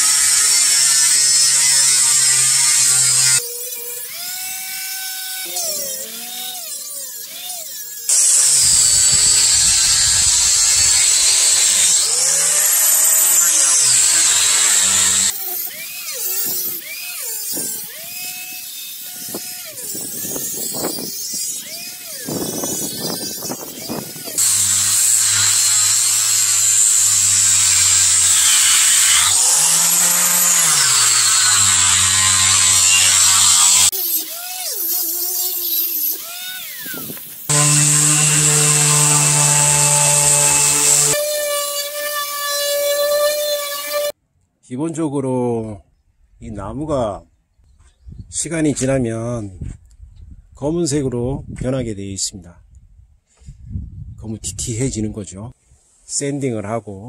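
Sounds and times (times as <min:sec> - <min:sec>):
orbital sander on wood: 0:00.0 - 0:44.2.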